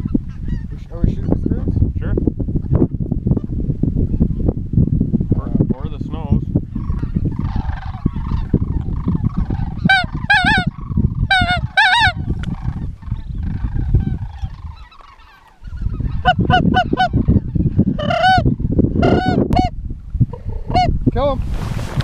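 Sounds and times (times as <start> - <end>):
cranes calling: 6.7 - 19.7.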